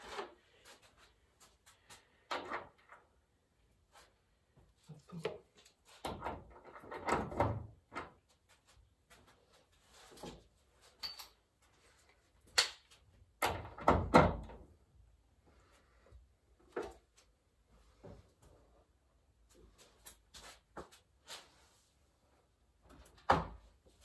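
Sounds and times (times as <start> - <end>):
hand tools and engine parts clinking: 10.2 - 11.7.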